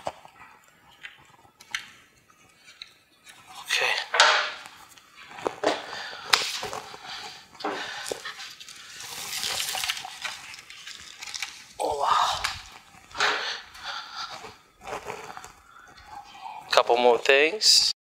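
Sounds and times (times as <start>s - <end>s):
plastic scraping rustle: 0.0s - 16.3s
plastic parts clicking and knocking: 4.1s - 4.7s.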